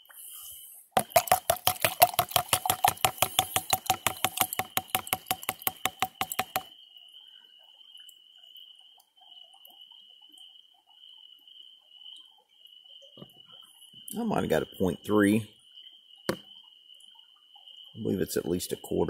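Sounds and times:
high-pitched insect drone: 0:00.1 - 0:19.0
rapid sharp knocks: 0:01.0 - 0:06.7.

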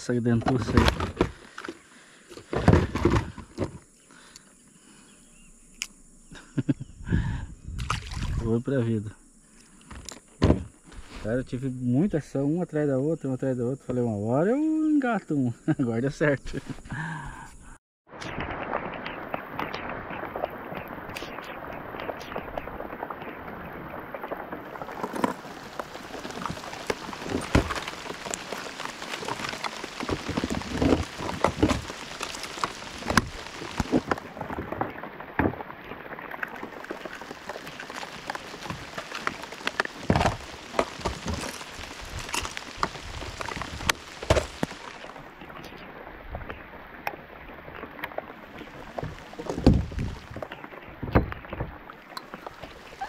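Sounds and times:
plastic boxes clattering: 0:02.4 - 0:03.8
rain pattering on water and kayak: 0:18.1 - 0:53.0.

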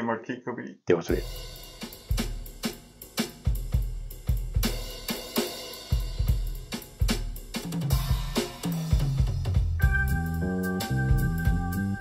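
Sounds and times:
drum kit playing a groove: 0:01.1 - 0:12.0
low pitched notes: 0:09.8 - 0:12.0.

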